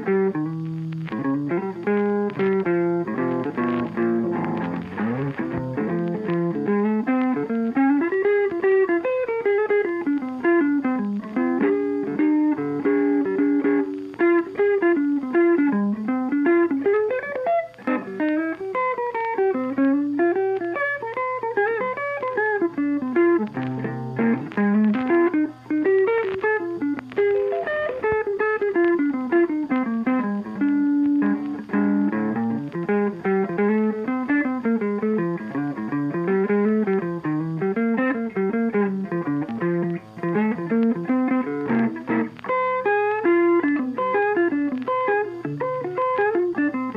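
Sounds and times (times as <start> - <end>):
busy instrumental melody: 0.0 - 16.0.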